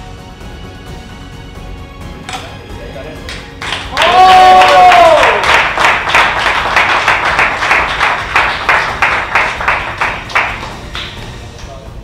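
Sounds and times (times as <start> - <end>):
hands clapping: 3.2 - 11.8.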